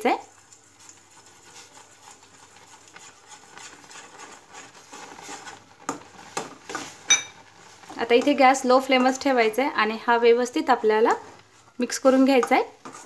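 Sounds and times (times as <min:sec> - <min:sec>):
fork scraping pan: 0:00.2 - 0:09.3, 0:12.0 - 0:13.0.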